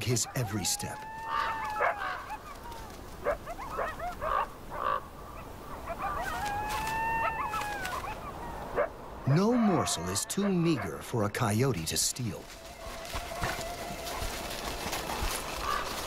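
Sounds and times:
coyotes yipping and whining: 0.0s - 11.0s, 12.5s - 16.0s
coyote drawn-out call: 0.3s - 2.5s.

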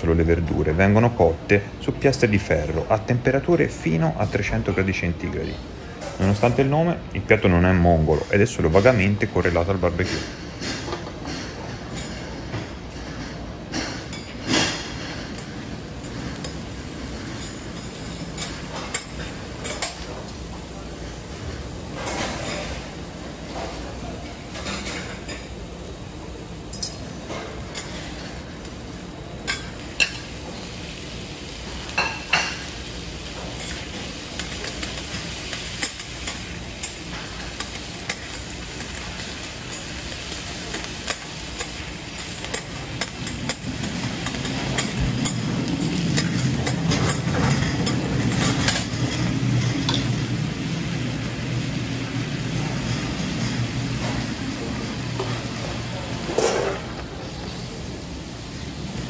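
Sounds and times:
vegetables sizzling on griddle: 24.3s - 59.0s
metal spatulas scraping and tapping: 33.6s - 49.2s.

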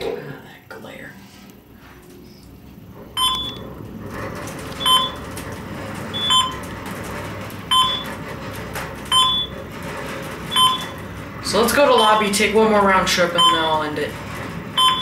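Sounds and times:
elevator car rumble and hum: 1.3s - 15.0s
short electronic beeps: 3.2s - 3.6s, 6.2s - 6.6s, 7.7s - 8.1s, 9.1s - 9.5s, 10.5s - 11.0s, 14.8s - 15.0s.

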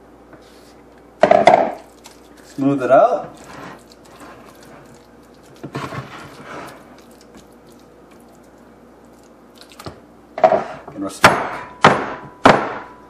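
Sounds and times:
sharp knocks on countertop: 1.2s - 1.8s, 11.2s - 13.0s
kitchenware scraping: 3.1s - 5.0s, 5.6s - 6.9s, 10.4s - 11.8s.

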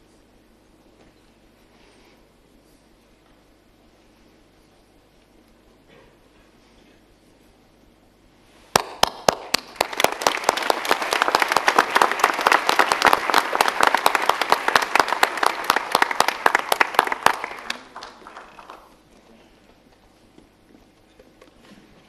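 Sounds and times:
audience applauding: 8.7s - 19.1s.

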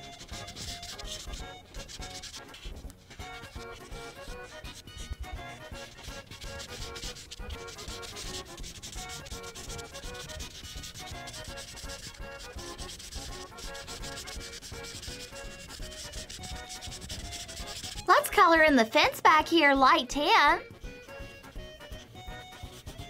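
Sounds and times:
marker rubbing across paper: 0.0s - 18.2s, 21.0s - 23.0s.

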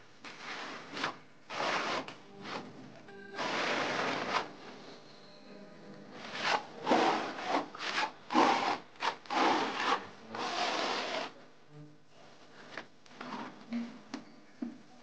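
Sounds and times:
hand tool scraping plaster: 0.3s - 2.7s, 3.4s - 4.6s, 6.2s - 11.4s.

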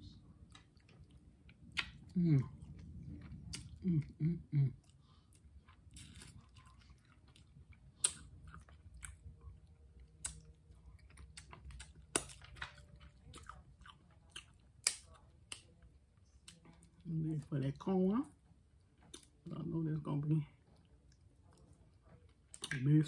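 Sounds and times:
chewing and mouth smacking: 0.4s - 17.1s, 18.8s - 19.5s, 20.6s - 23.0s
person humming: 3.8s - 4.8s.

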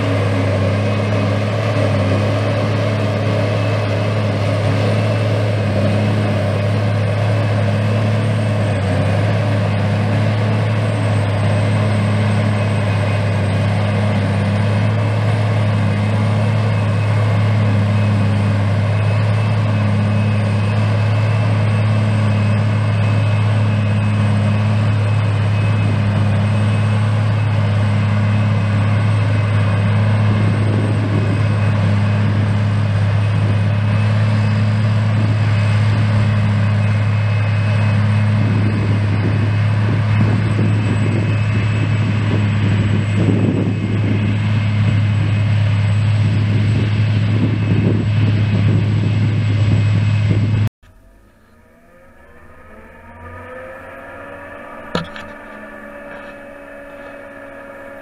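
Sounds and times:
forage harvester droning: 0.0s - 58.0s
faint high whines: 50.8s - 58.0s.

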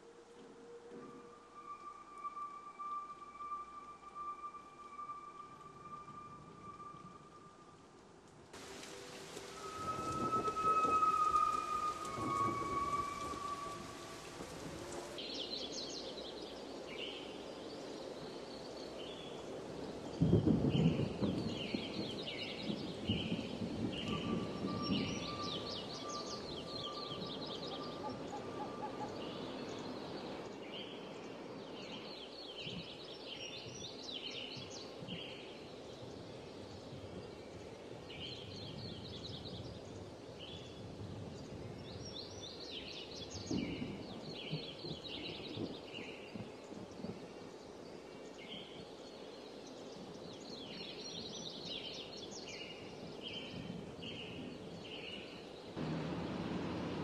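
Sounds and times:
background hiss: 0.0s - 57.0s
birds chirping: 8.6s - 19.4s, 20.8s - 33.8s.

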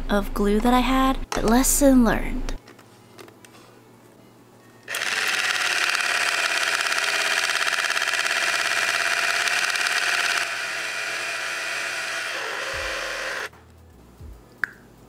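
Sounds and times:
toy mixer motor whirring: 4.9s - 13.5s.

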